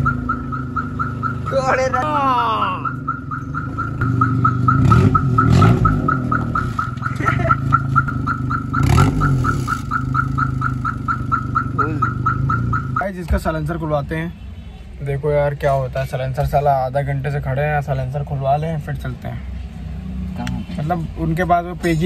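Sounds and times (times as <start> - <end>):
loud car exhaust rumble: 0.0 - 2.1, 2.8 - 13.7.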